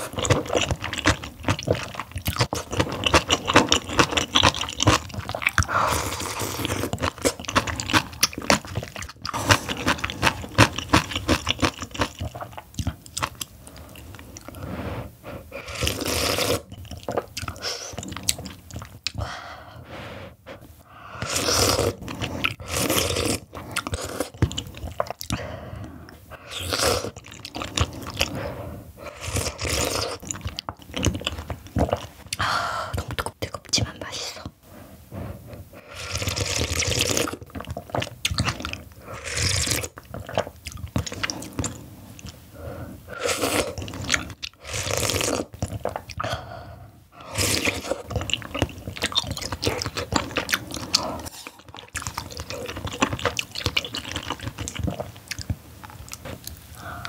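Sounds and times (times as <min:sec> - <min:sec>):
wet chewing and crunching: 0:00.0 - 0:14.6, 0:15.6 - 0:19.3, 0:21.2 - 0:28.4, 0:29.0 - 0:33.8, 0:35.9 - 0:42.5, 0:43.1 - 0:46.5, 0:47.2 - 0:57.0
slurping noodles: 0:13.2 - 0:19.2, 0:21.1 - 0:25.5, 0:26.3 - 0:32.4, 0:35.8 - 0:46.4, 0:47.2 - 0:55.1.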